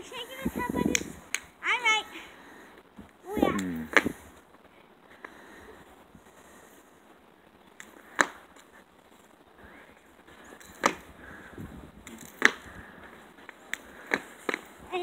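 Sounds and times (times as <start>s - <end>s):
jump rope slapping concrete: 12.1s - 12.7s.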